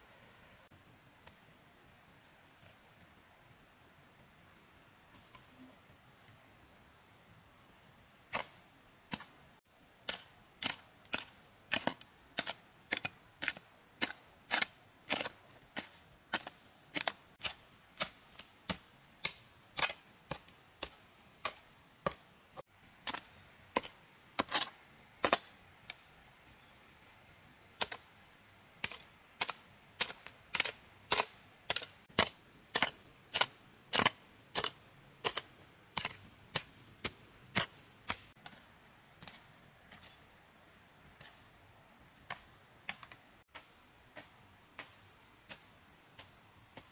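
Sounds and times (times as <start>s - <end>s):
high insect drone: 0.0s - 46.9s
hand tool striking wood: 10.1s - 22.2s, 28.8s - 38.6s.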